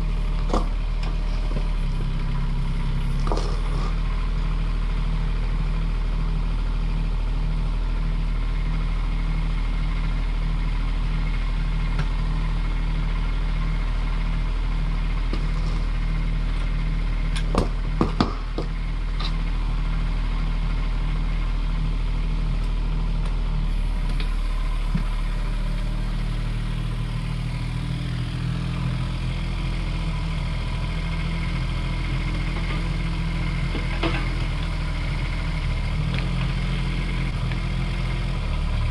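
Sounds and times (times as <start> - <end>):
excavator diesel engine running: 0.0 - 38.9
sharp knocks: 17.4 - 18.8.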